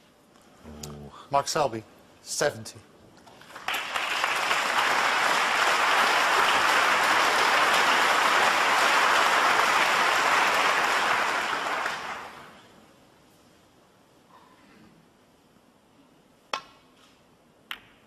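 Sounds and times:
audience applauding: 3.4 - 12.7.

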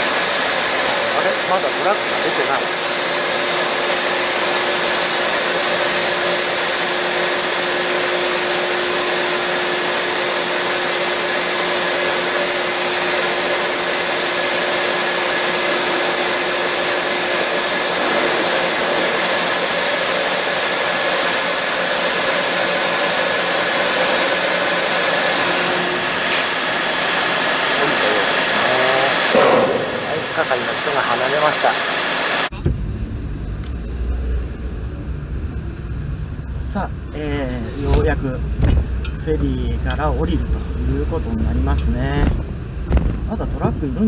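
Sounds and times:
ventilation fans whooshing hiss: 0.0 - 32.5.

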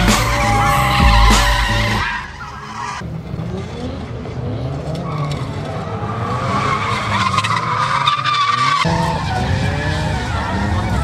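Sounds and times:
tyres squealing: 0.0 - 3.0
car engine revving: 0.0 - 11.0.

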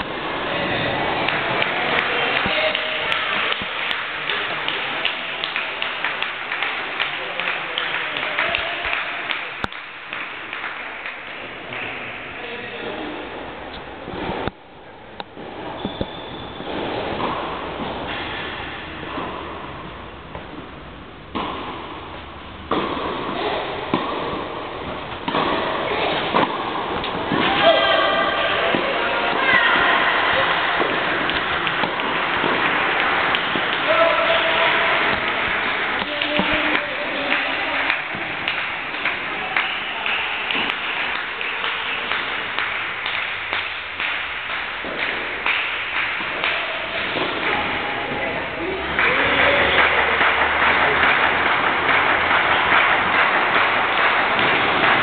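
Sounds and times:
tennis racket hitting ball: 0.0 - 7.0, 15.2 - 19.7, 21.3 - 55.0
crowd noise: 0.0 - 55.0
steady background hiss: 0.0 - 55.0
rhythmic clapping: 1.1 - 12.2, 28.2 - 55.0.

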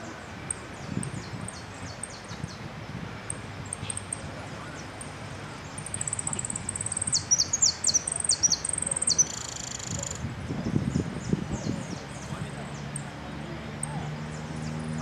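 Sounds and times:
finch singing trills: 3.3 - 13.1.

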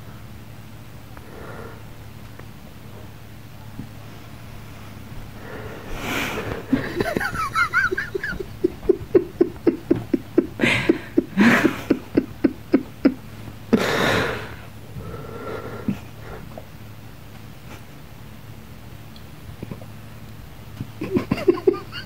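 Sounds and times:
wheezing gasp: 5.4 - 7.0, 13.7 - 16.6
person laughing breathlessly: 5.4 - 16.6, 20.9 - 22.0.

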